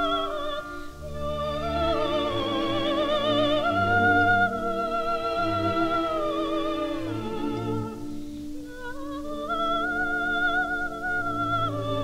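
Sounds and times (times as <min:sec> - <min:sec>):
orchestra playing: 0:00.0 - 0:08.4
soprano singing with vibrato: 0:00.0 - 0:12.0.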